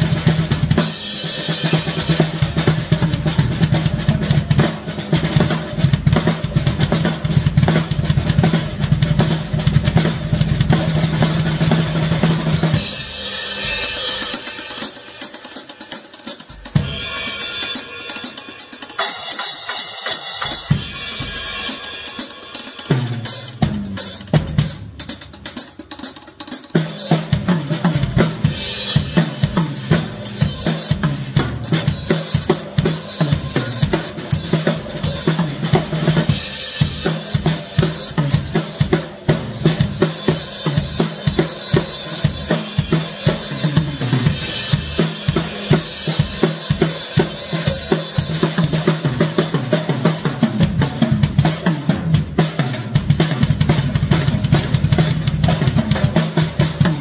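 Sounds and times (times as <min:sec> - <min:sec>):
snare and cymbal hits: 0:00.0 - 0:57.0
toms and bass drum: 0:16.5 - 0:25.5.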